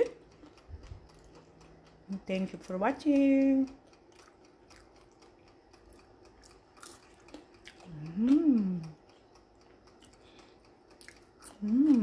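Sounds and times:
person humming: 7.9 - 9.0, 11.5 - 12.0.

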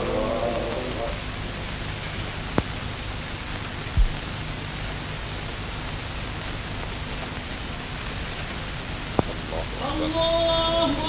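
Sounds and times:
film soundtrack hiss and hum: 0.0 - 11.0
short low thump: 3.9 - 4.2.

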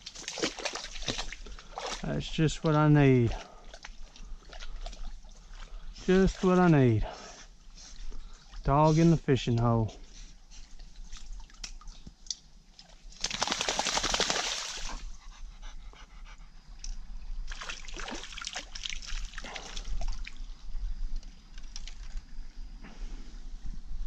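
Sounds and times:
water splashing around dog: 0.0 - 7.0, 12.7 - 15.2, 17.5 - 20.4.

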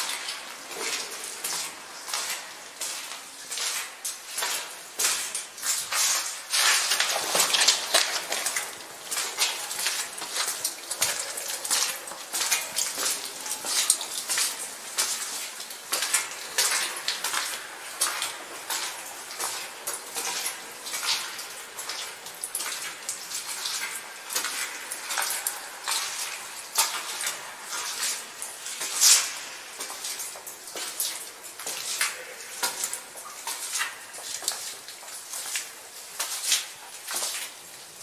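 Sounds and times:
footsteps crunching on loose rocks: 3.7 - 15.2.

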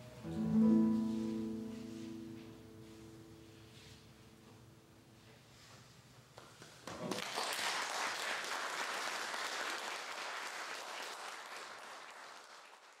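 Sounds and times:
audience applauding: 6.9 - 13.0.

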